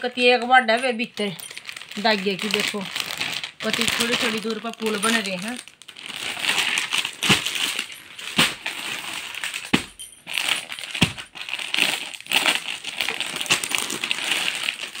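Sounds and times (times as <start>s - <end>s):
plastic packaging crinkling: 0.1s - 15.0s.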